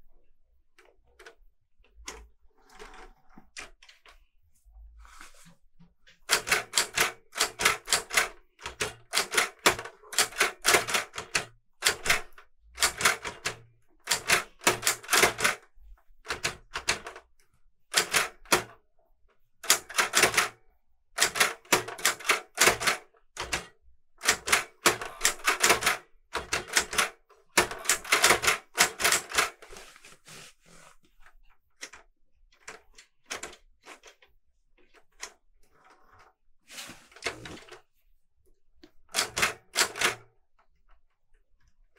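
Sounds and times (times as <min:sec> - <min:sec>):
typewriter keys clacking: 0:06.2 - 0:15.6, 0:17.9 - 0:18.7, 0:19.6 - 0:20.5, 0:21.2 - 0:29.7, 0:39.1 - 0:40.2.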